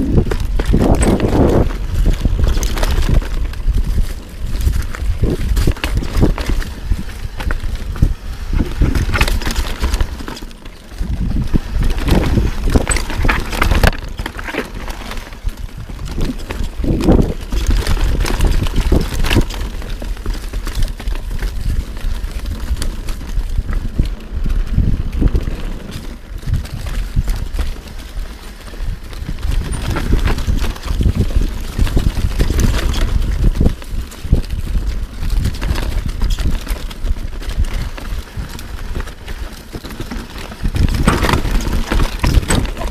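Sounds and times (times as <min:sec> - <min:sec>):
bike knocks and rattles: 0:00.0 - 0:42.9
bike tyres rolling over rocks: 0:00.0 - 0:42.9
low wind rumble: 0:00.0 - 0:42.9.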